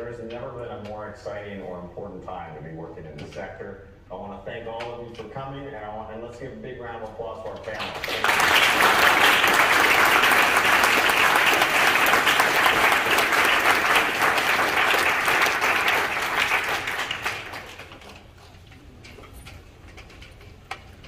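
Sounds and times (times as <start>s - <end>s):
audience applauding: 7.8s - 18.2s.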